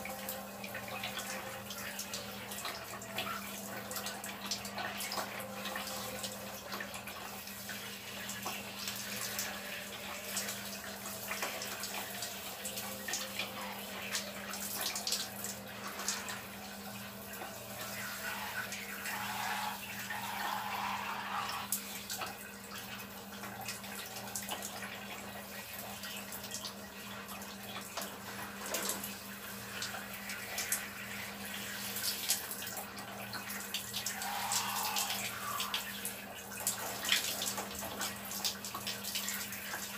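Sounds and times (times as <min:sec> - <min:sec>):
shower water spraying and splashing: 0:00.0 - 0:39.9.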